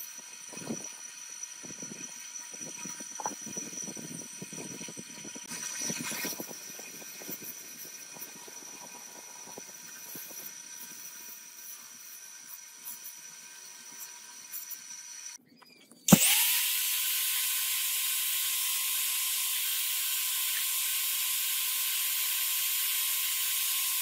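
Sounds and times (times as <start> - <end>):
electric motor whine: 0.0 - 15.4, 16.1 - 24.0.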